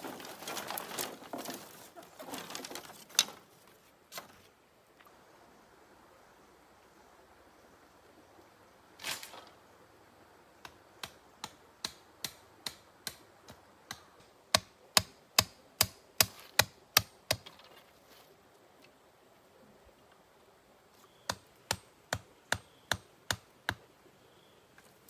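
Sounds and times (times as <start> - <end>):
rustle: 0.0 - 25.0
sharp knocks on bamboo: 10.6 - 17.6.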